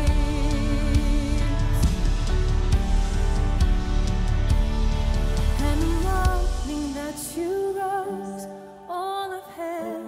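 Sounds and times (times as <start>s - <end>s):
woman singing slow melody: 0.0s - 2.1s, 5.6s - 10.0s
worship band playing: 0.0s - 7.4s.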